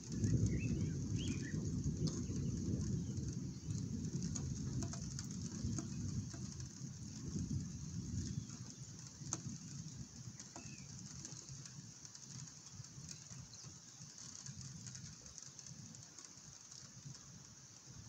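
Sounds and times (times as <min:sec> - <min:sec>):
thunder rumble: 0:00.0 - 0:13.7
steady rain: 0:00.0 - 0:18.0
bird chirp: 0:00.1 - 0:03.7.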